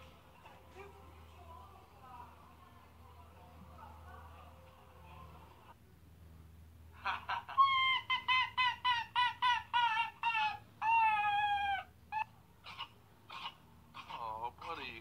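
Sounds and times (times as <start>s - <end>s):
small animal yelping calls: 7.6s - 14.9s.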